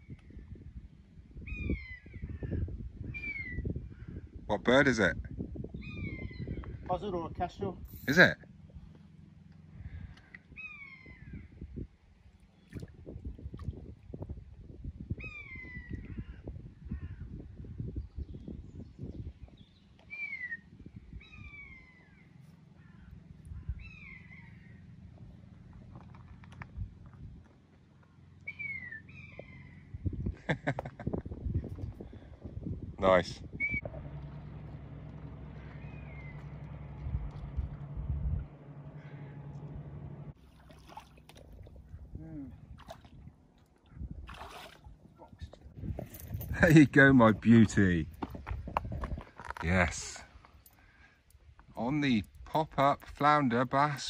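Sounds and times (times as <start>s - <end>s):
distant outboard motor humming: 8.4s - 13.0s, 21.4s - 26.4s, 33.6s - 46.1s.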